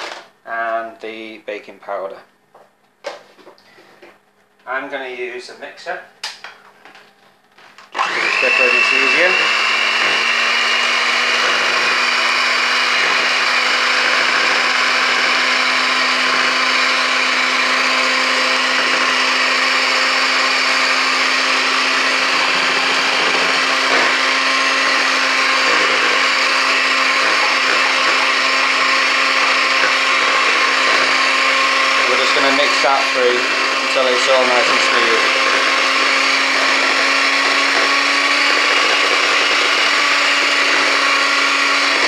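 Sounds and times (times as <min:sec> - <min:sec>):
electric hand mixer whirring: 0:00.0 - 0:00.3, 0:07.8 - 0:42.0.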